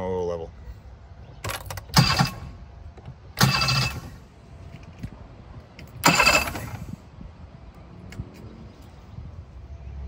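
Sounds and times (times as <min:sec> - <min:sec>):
electric starter cranking engine: 0:01.7 - 0:02.6, 0:03.4 - 0:04.2, 0:06.0 - 0:06.9.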